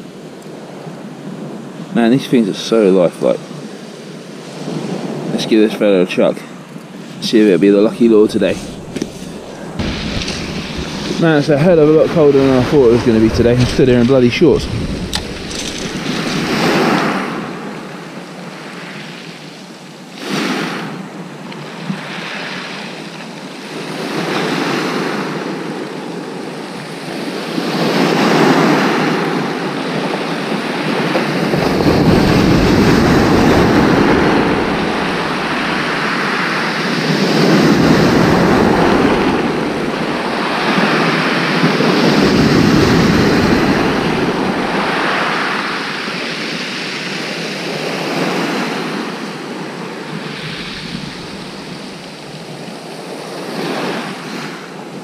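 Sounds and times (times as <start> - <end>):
waves washing on shingle: 6.9 - 19.3, 26.7 - 55.0
wind rumble on microphone: 8.2 - 18.4, 26.8 - 54.4.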